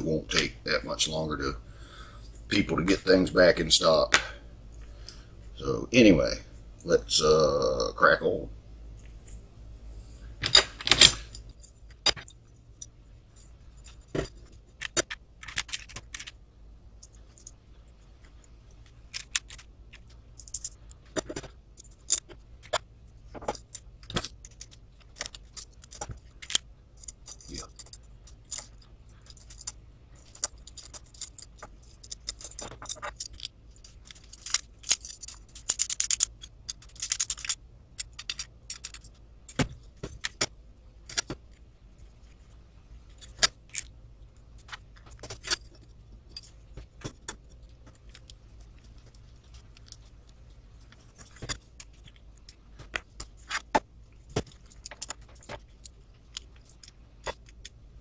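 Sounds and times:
small screws clicking and clinking: 10.0 - 58.0.

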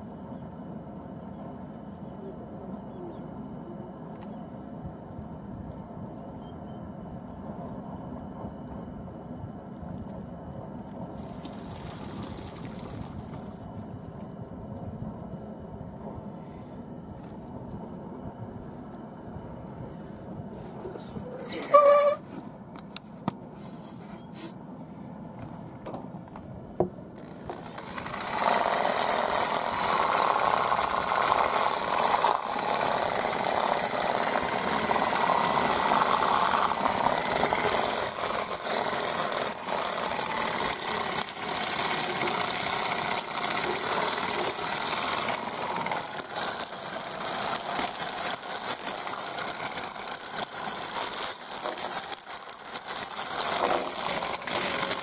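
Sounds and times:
chicken plucker rattling: 27.2 - 55.0.

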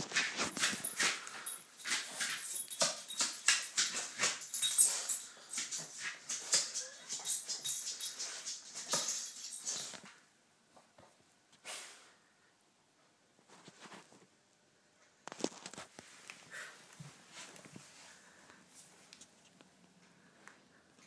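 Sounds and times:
dog scuffling on floor: 0.0 - 10.1.

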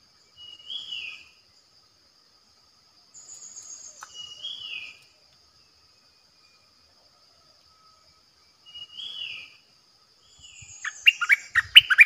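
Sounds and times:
high insect drone: 0.0 - 12.0
bird whistling phrases: 10.9 - 12.0.

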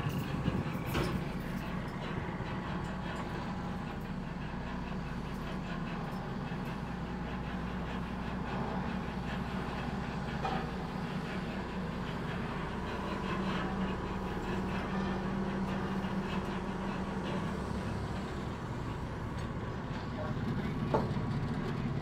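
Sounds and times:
diesel engine droning: 0.0 - 22.0.

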